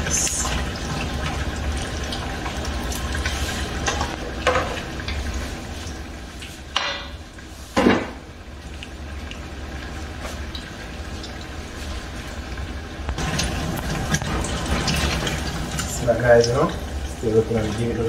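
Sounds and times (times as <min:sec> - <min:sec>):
deep-frying sizzle and pops: 0:12.4 - 0:16.8.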